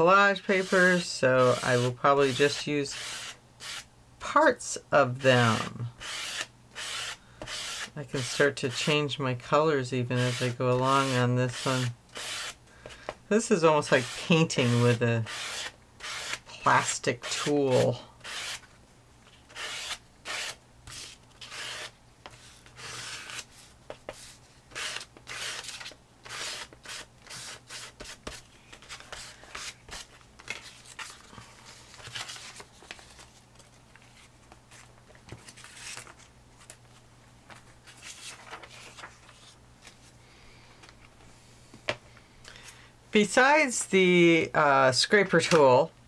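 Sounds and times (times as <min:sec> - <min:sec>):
plastic scraper on paper: 0:19.5 - 0:30.6
paper rustling: 0:28.0 - 0:40.2.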